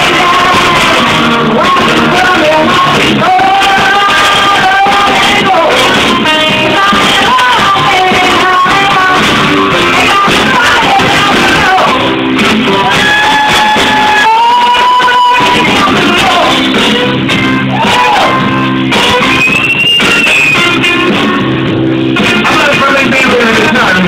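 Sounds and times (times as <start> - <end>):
woman singing: 0.0 - 17.1
live rock band: 0.0 - 24.0.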